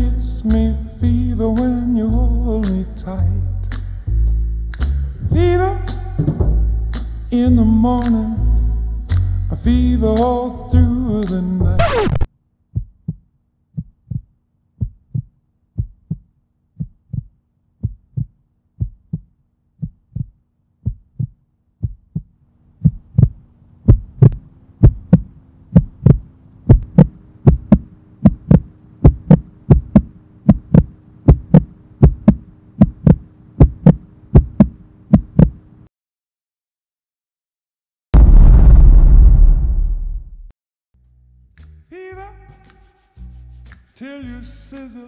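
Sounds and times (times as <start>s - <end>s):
heartbeat thumps: 12.7s - 35.6s.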